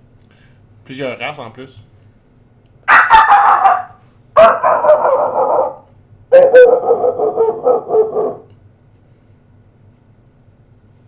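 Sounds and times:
man imitating dog yapping: 2.9s - 8.5s.

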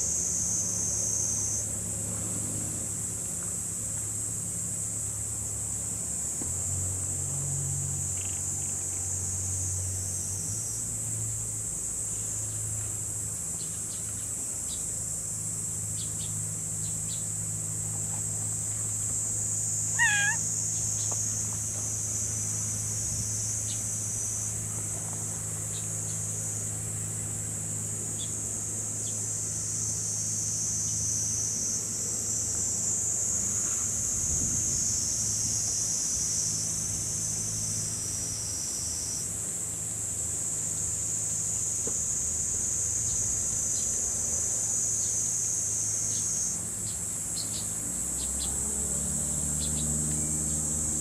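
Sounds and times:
high-pitched insect drone: 15.9s - 26.6s, 39.9s - 51.0s
cat meowing: 19.9s - 20.4s.

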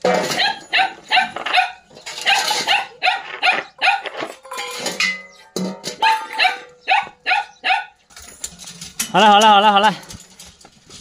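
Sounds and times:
dog barking: 0.4s - 4.3s, 6.0s - 8.0s.

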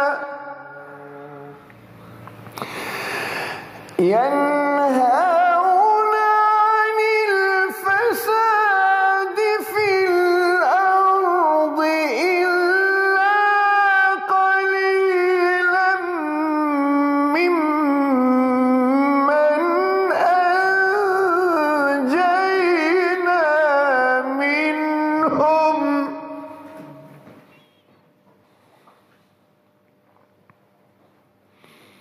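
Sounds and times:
man reciting melodically: 0.0s - 1.7s, 3.9s - 27.3s.

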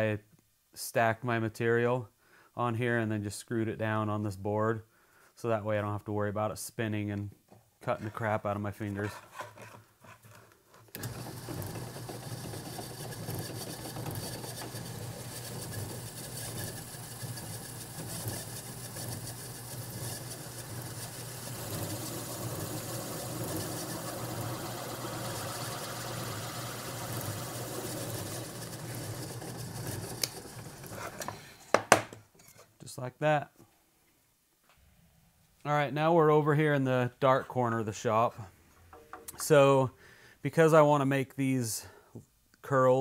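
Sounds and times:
power drill boring wood: 11.0s - 31.3s.

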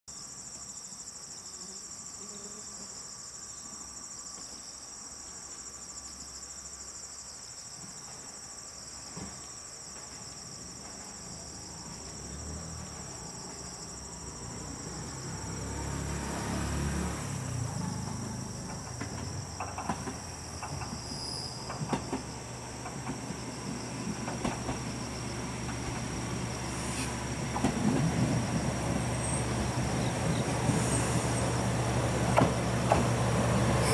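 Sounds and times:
insects chirring: 0.1s - 33.9s
diesel railcar engine: 10.0s - 33.9s
wheels clicking over rail joints: 17.8s - 25.0s, 27.4s - 30.8s.

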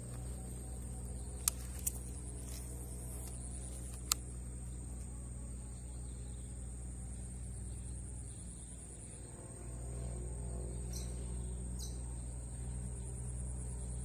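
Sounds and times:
low hum: 0.0s - 14.0s
sharp clicks: 1.3s - 4.4s.

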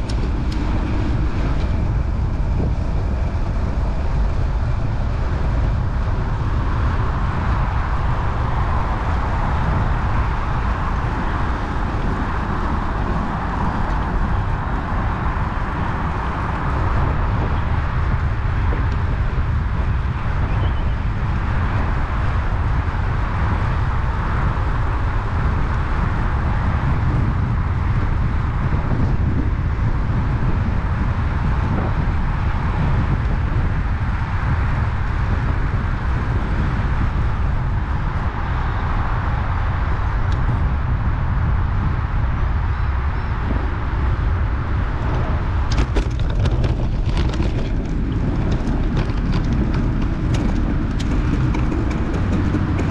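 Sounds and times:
wind rumble on microphone: 0.0s - 52.9s.

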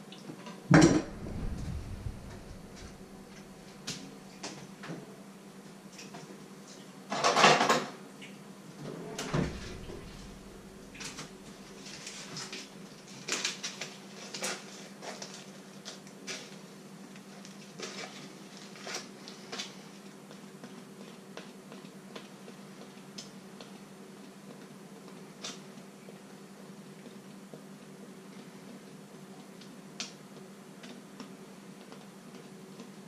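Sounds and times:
faint steady hum: 0.7s - 5.0s, 9.0s - 13.1s.

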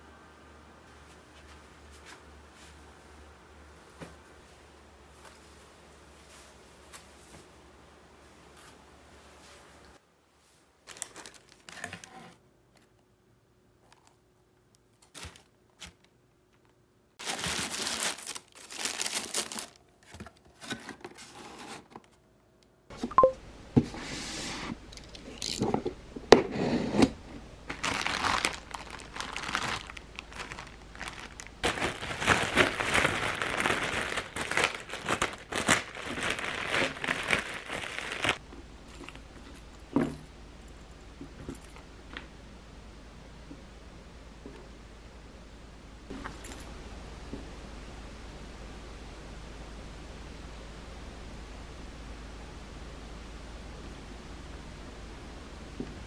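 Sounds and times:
plastic bag crinkling: 10.8s - 12.2s, 17.2s - 20.1s, 27.7s - 38.4s
tissue paper rustling: 17.2s - 19.8s, 27.7s - 38.4s.

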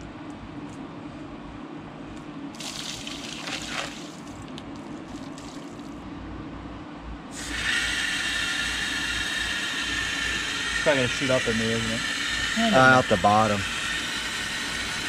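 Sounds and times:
hose water rushing into radiator: 2.6s - 4.4s, 7.4s - 15.0s
water splashing out of radiator: 2.6s - 4.4s.

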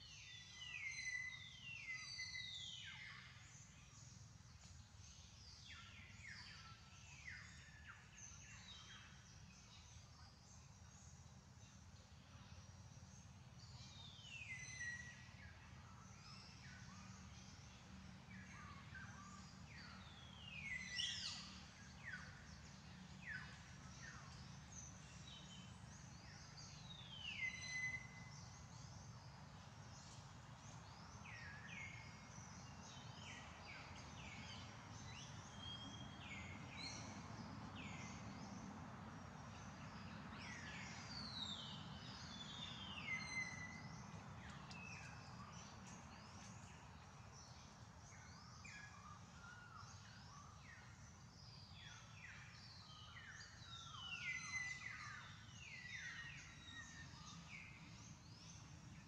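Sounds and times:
birds chirping: 39.4s - 58.9s.

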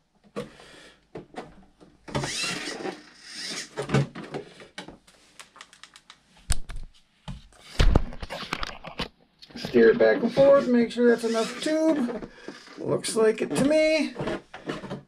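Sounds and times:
clicks: 5.4s - 6.8s.

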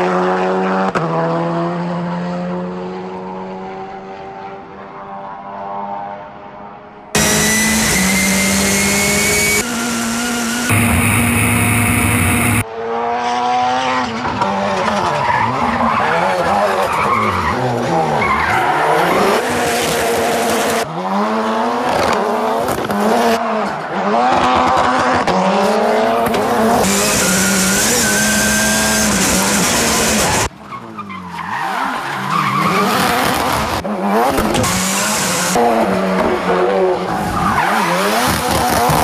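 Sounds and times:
tyres skidding and squealing: 7.2s - 12.6s, 14.4s - 20.9s, 26.1s - 39.0s
rally car engine revving: 7.2s - 39.0s.

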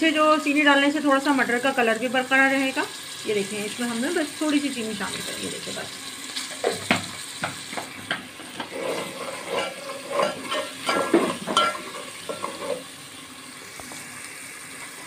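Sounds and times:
oil sizzling: 0.0s - 15.0s
metal ladle scraping pot: 8.1s - 12.9s.

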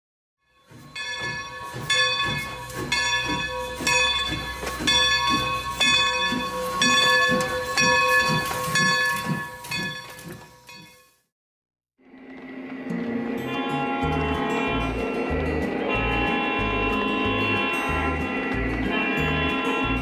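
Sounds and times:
locomotive bell ringing: 0.4s - 11.2s, 13.0s - 20.0s
steam engine exhaust chuffs: 0.6s - 10.6s
steam hissing: 0.7s - 10.4s.

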